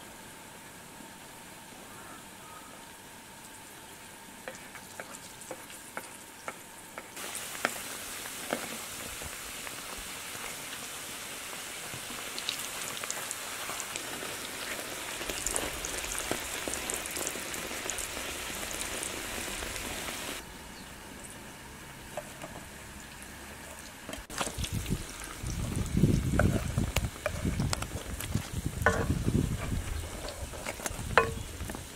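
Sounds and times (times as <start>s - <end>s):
dough deep-frying in oil: 4.4s - 20.4s, 22.1s - 31.9s.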